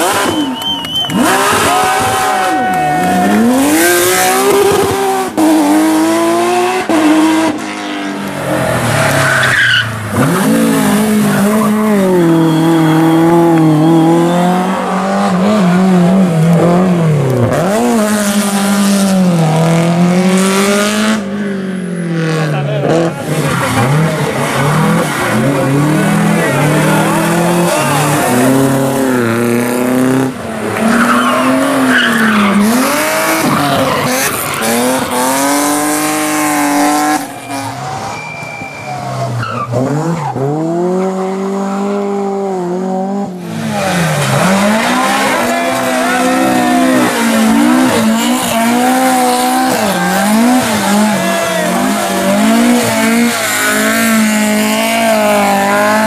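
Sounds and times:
rally car engine revving: 0.0 - 56.0
tyres squealing: 9.0 - 14.5, 30.8 - 40.4.

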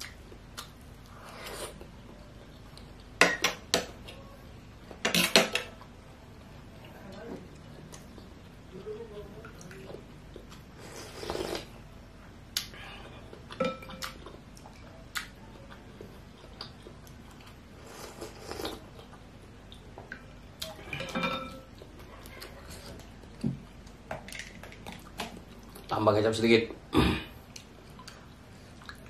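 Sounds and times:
person slurping soup: 10.8 - 11.7.

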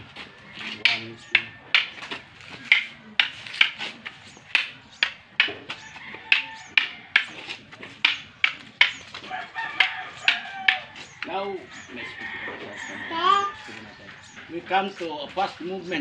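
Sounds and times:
wooden sticks clacking together: 0.6 - 11.3.

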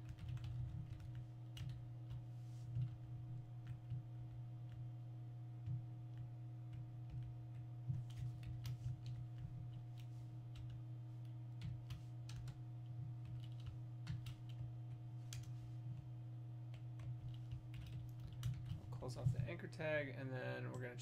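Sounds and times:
low electrical hum: 0.0 - 21.0
keyboard typing clicks: 13.2 - 15.5.

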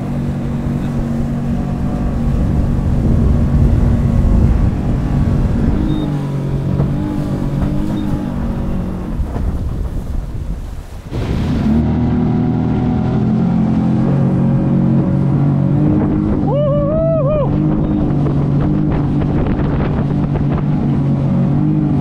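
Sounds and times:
outboard motor running: 0.0 - 22.0
rushing water: 0.0 - 22.0
wind on microphone: 0.0 - 22.0
brief wavering high whoop: 16.4 - 17.7.

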